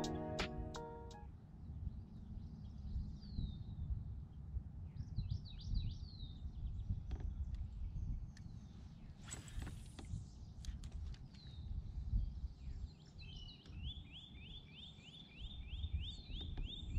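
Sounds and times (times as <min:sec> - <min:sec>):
songbird chirping: 0:00.0 - 0:01.2.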